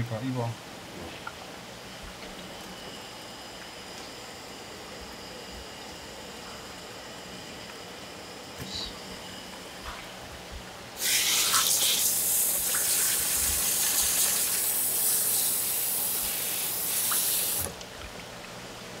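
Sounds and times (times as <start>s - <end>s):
water running and splashing: 15.5s - 18.6s.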